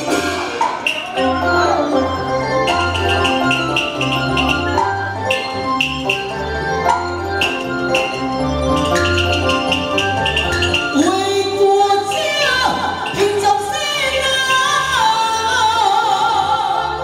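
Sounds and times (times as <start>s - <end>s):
steady percussion beat: 0.0s - 15.4s
live band accompaniment: 0.0s - 17.0s
woman singing through a microphone: 10.9s - 17.0s.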